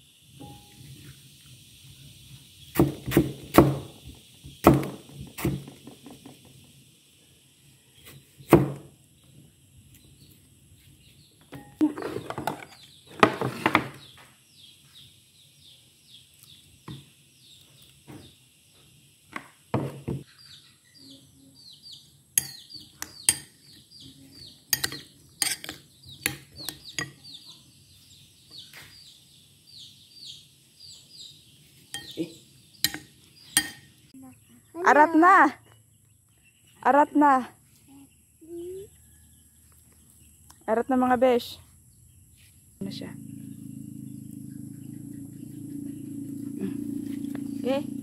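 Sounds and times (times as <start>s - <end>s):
metal spoon scraping ceramic bowl: 24.7s - 25.8s
rapid high chirping: 42.8s - 48.0s.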